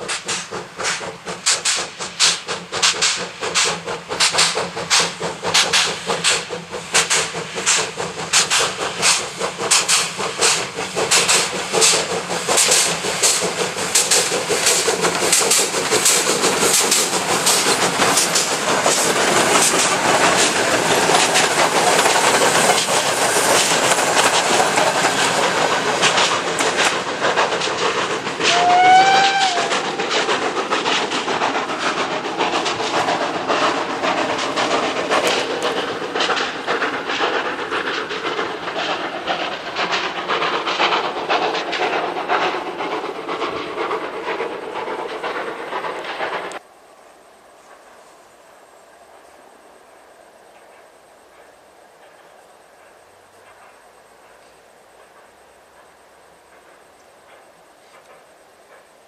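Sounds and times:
steam locomotive exhaust chuffs: 0.0 - 46.7, 47.6 - 59.0
train passing rush: 0.0 - 59.0
train whistle: 28.4 - 29.8.

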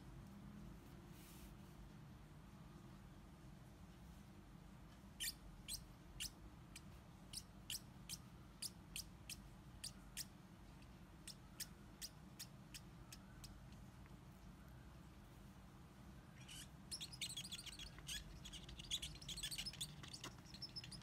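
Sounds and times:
marker pen squeaking on paper: 16.4 - 21.0.

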